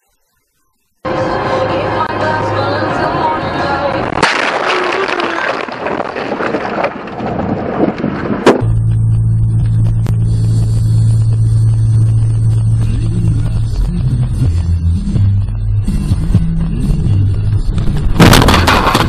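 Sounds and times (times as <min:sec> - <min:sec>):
low engine drone in car cabin: 0:01.0 - 0:04.2, 0:08.6 - 0:18.1
car rumbling scraping and rattling: 0:02.9 - 0:19.0
car crash burst of noise: 0:04.0 - 0:08.7, 0:17.8 - 0:19.0.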